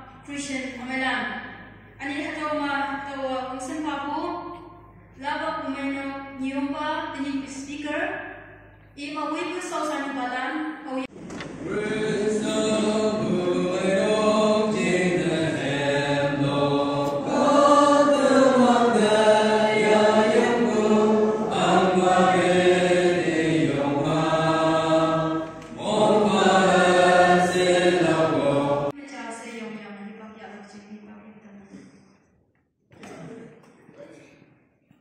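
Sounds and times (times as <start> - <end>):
choir singing a hymn: 11.4 - 29.0.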